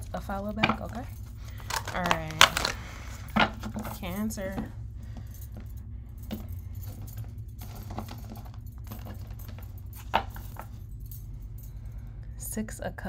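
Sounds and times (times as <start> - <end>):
metal bangles clinking: 0.0 - 12.0
low hum: 0.0 - 13.0
cards being shuffled: 1.5 - 3.6.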